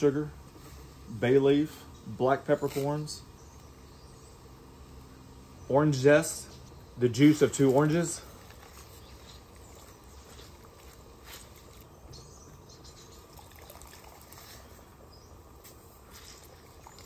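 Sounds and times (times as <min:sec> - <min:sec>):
drips and squelches of squeezed fruit: 0:07.5 - 0:12.0, 0:13.1 - 0:15.0, 0:15.7 - 0:17.0.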